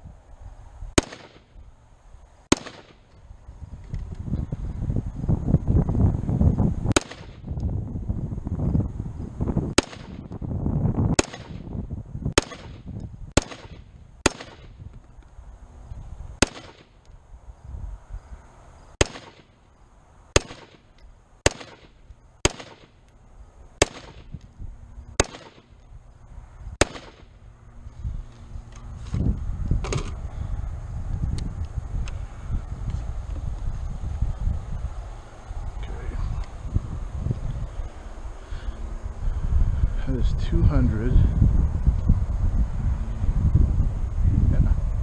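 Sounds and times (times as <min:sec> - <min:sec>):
rifle shots: 0:01.0 - 0:01.6, 0:02.5 - 0:03.1, 0:06.9 - 0:07.5, 0:09.7 - 0:10.3, 0:11.1 - 0:11.7, 0:12.3 - 0:14.8, 0:16.4 - 0:17.0, 0:19.0 - 0:19.6, 0:20.3 - 0:23.0, 0:23.8 - 0:24.4, 0:25.2 - 0:25.8, 0:26.8 - 0:27.4.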